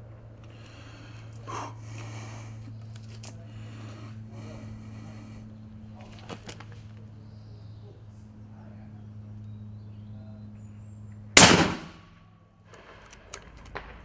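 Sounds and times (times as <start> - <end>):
rifle shot: 11.4 - 14.0.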